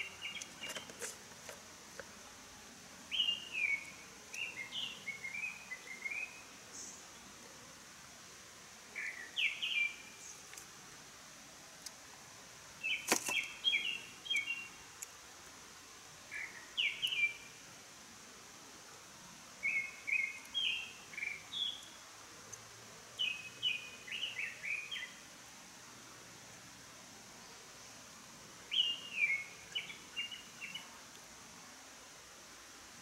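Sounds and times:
songbird singing: 0:00.0 - 0:02.2, 0:03.0 - 0:07.6, 0:08.9 - 0:10.7, 0:12.7 - 0:15.2, 0:16.2 - 0:17.7, 0:19.5 - 0:25.3, 0:27.3 - 0:31.2.

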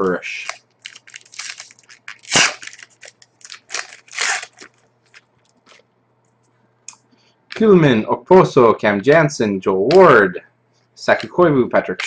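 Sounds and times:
foil wrapper rustling: 0:00.3 - 0:05.8.

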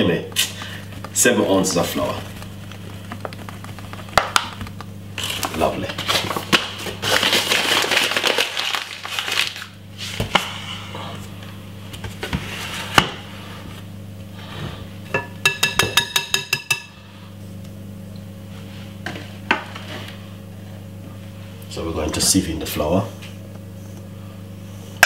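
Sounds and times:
steady low hum: 0:00.0 - 0:25.0
metal whisk tapping glass bowl: 0:15.2 - 0:16.9.

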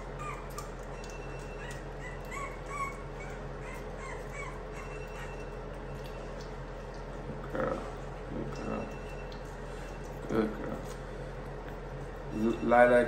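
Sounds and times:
puppy whimpering: 0:00.0 - 0:06.1.

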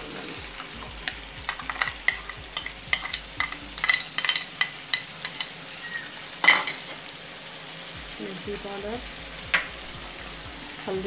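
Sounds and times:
chicken sizzling in a pan: 0:00.0 - 0:11.0
spoon knocking: 0:00.5 - 0:05.6, 0:09.5 - 0:09.9
metal spoon scraping a pan: 0:00.6 - 0:06.9.

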